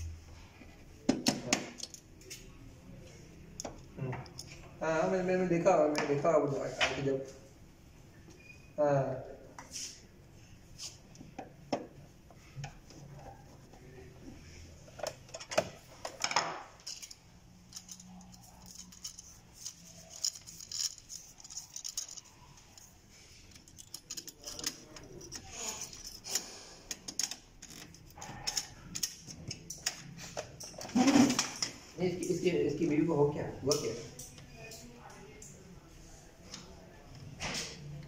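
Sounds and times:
screwdriver clicks and scrapes: 16.8s - 22.9s.

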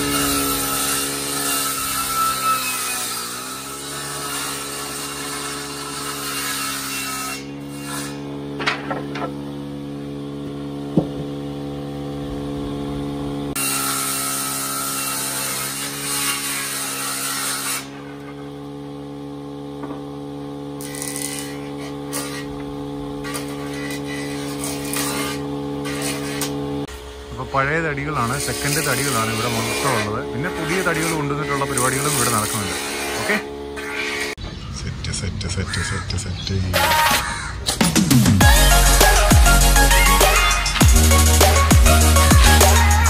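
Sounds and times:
wood shaving in planer: 0.0s - 34.4s, 38.4s - 43.0s
planer humming: 0.0s - 43.0s
sharp knocks of board: 10.9s - 11.3s.

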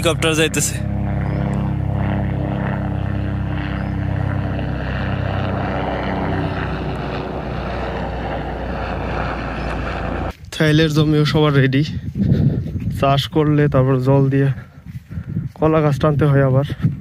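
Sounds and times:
helicopter drone: 0.0s - 10.4s.

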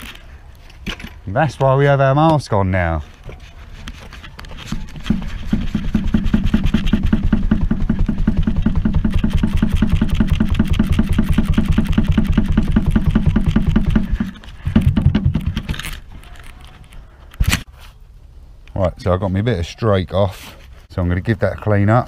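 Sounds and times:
rapid mechanical rattle: 5.4s - 15.5s.

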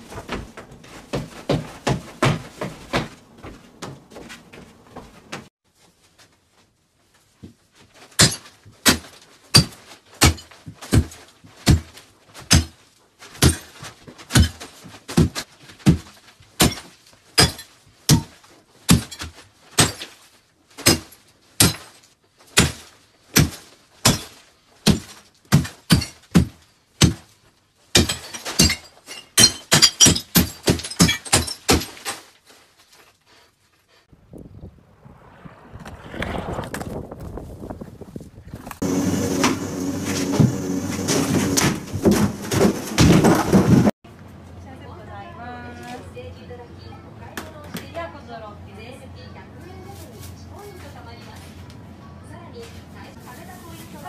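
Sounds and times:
hard blows smashing brittle pieces: 8.0s - 33.1s, 38.8s - 44.0s.

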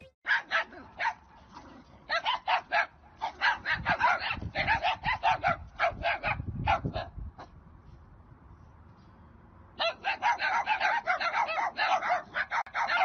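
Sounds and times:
dogs barking: 0.2s - 7.2s, 9.8s - 13.0s.

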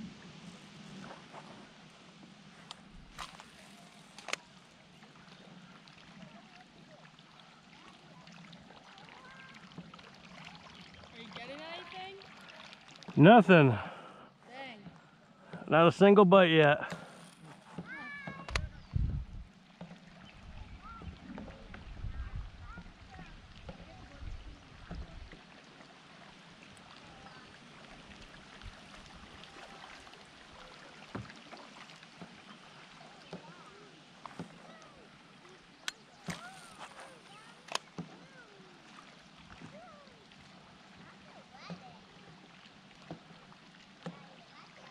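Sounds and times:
water lapping against kayak hull: 0.0s - 44.9s
light ticks on hull: 2.6s - 3.5s.

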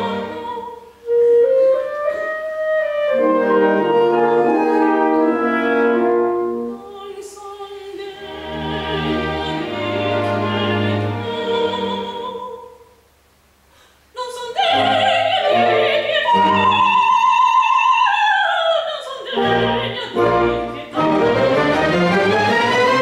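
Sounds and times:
operatic singing with wide vibrato: 0.0s - 13.0s, 14.1s - 23.0s
orchestra playing: 1.4s - 6.9s, 19.4s - 23.0s.

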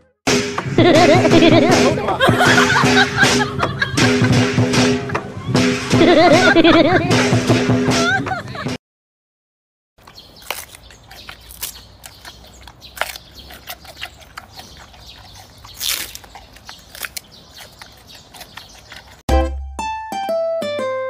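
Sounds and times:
dog gnawing chew stick: 10.0s - 19.2s.

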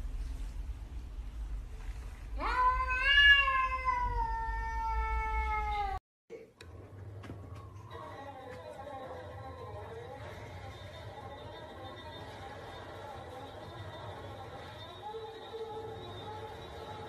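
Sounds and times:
cat meowing: 2.4s - 6.0s.

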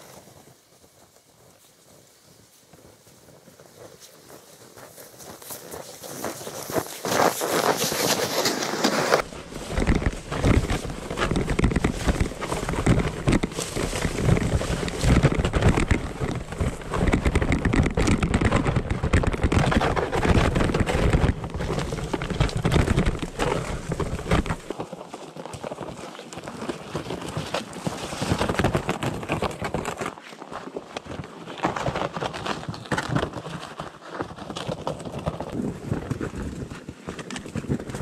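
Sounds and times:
footsteps crunching in snow: 0.0s - 29.0s
sled scraping over snow: 0.0s - 38.0s.

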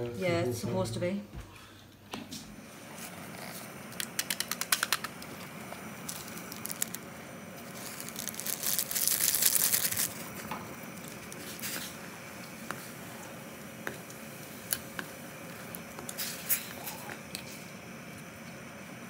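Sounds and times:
plastic packets crinkling and tearing: 6.0s - 7.0s, 7.6s - 10.3s.

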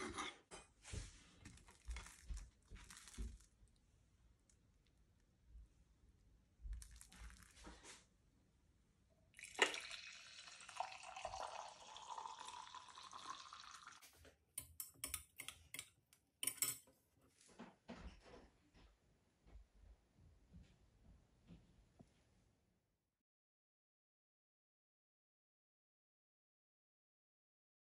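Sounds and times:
tea pouring into glass mug: 9.4s - 14.0s
metal spoon clinking on glass: 14.6s - 16.9s.

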